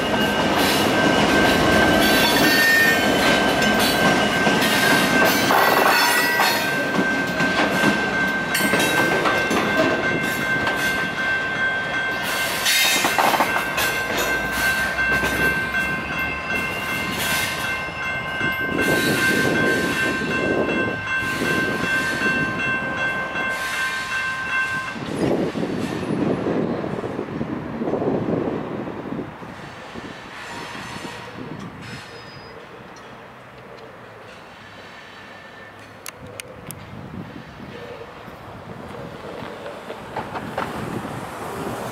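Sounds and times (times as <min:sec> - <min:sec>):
crossing signal bells ringing: 0:00.0 - 0:25.5
train cars rumbling and clattering: 0:00.0 - 0:41.9.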